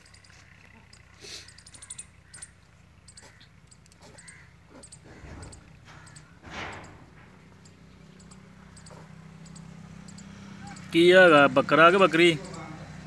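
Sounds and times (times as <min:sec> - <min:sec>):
harsh animal calls: 0:00.3 - 0:10.9
faint high chirps: 0:07.6 - 0:10.9.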